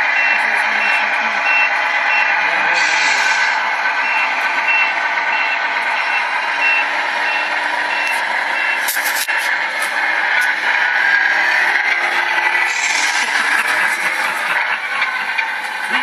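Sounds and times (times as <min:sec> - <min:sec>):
reversing beeper: 0:00.0 - 0:09.7.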